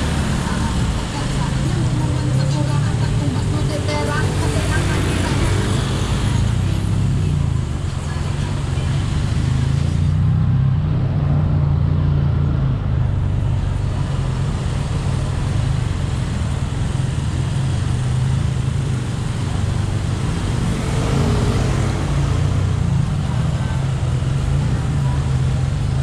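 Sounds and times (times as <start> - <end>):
hum of traffic: 0.0 - 26.0.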